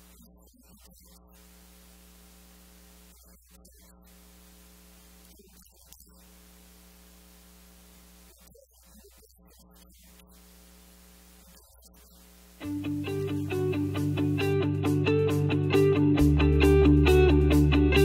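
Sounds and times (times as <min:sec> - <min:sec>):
faint electrical hum: 0:00.0 - 0:13.3
recording hiss: 0:00.0 - 0:14.6.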